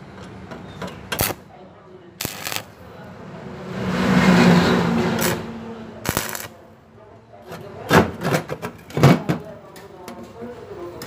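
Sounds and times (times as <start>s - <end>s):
welding arc crackling: 1.2s - 1.4s, 2.2s - 2.8s, 5.2s - 5.4s, 6.0s - 6.6s.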